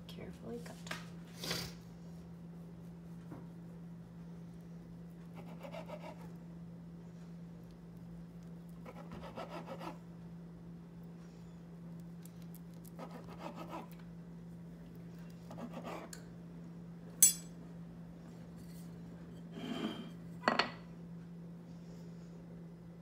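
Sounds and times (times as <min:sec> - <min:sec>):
steady low hum: 0:00.0 - 0:23.0
knife sawing through bread: 0:05.3 - 0:06.3, 0:08.8 - 0:10.0, 0:13.0 - 0:13.9, 0:15.5 - 0:16.2.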